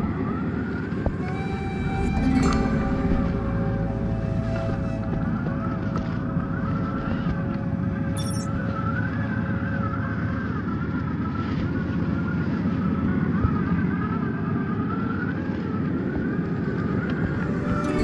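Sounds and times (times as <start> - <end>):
steady low rumble: 2.8 - 14.8.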